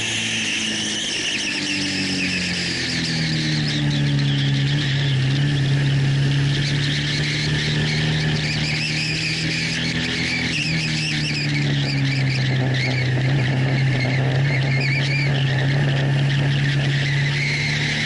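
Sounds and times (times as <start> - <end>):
motorcycle engine at high revs: 0.0 - 18.0.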